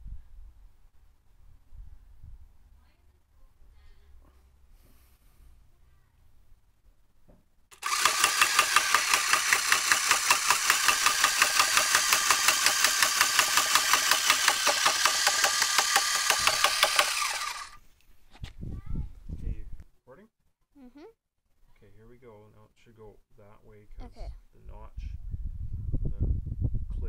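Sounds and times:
pulsing machine clatter: 7.7 - 17.8.

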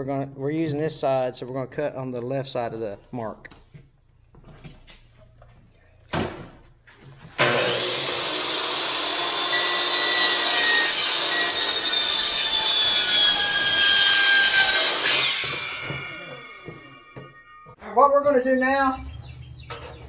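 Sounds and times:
miter saw cutting board: 7.3 - 17.8.

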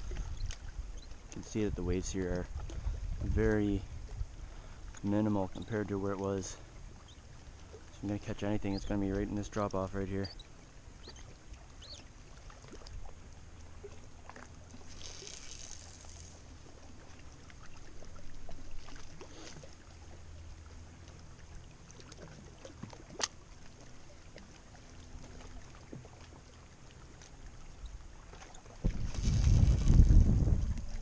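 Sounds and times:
waves lapping on rocky shore: 0.0 - 25.7
wind buffeting microphone: 1.4 - 4.6, 28.8 - 31.0
fishing reel clicks: 14.9 - 16.3.

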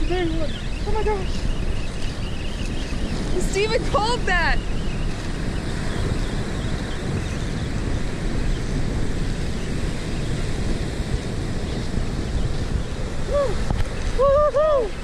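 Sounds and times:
wind buffeting microphone: 0.0 - 15.0
breaking surf: 3.0 - 15.0.

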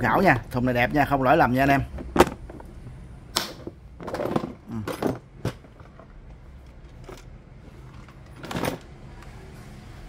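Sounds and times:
plastic toolbox clicks and knocks: 1.9 - 2.8, 3.4 - 6.2, 7.9 - 8.9.

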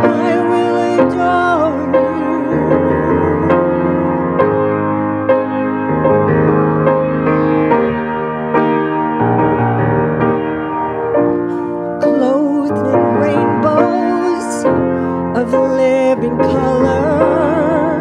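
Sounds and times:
person singing worship song: 0.0 - 4.3, 12.0 - 18.0
piano playing sustained chords: 0.0 - 18.0.

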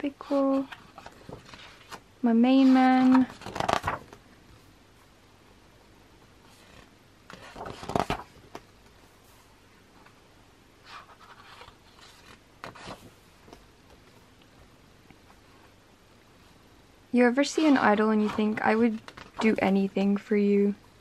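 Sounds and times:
book pages turning: 0.4 - 4.2, 6.5 - 9.0, 10.8 - 14.2, 17.7 - 19.6.

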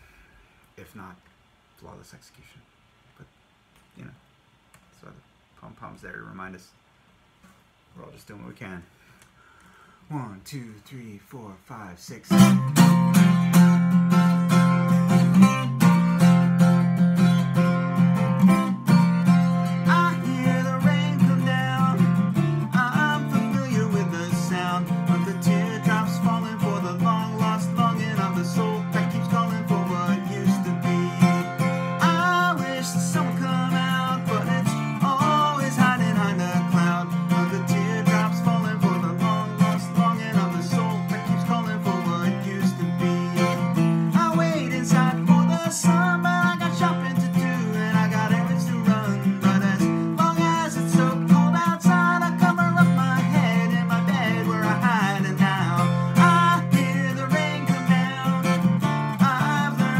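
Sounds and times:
acoustic guitar strumming: 12.3 - 59.9
man singing: 17.6 - 59.9.

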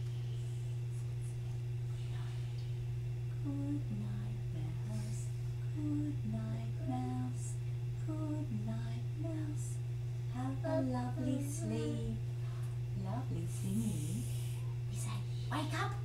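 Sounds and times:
steady low hum: 0.0 - 16.0
woman humming a lullaby: 3.4 - 9.8, 13.2 - 14.5.

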